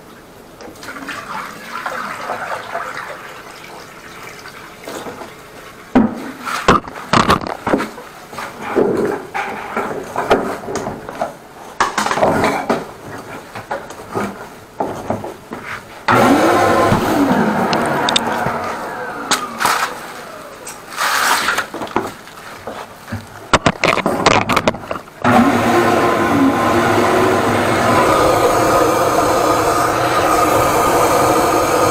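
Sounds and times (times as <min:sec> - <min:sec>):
water running and splashing: 0:00.7 - 0:06.6
sharp knocks and clatter: 0:06.0 - 0:08.0, 0:08.6 - 0:12.9, 0:21.5 - 0:25.2
steady water rush: 0:25.3 - 0:31.9.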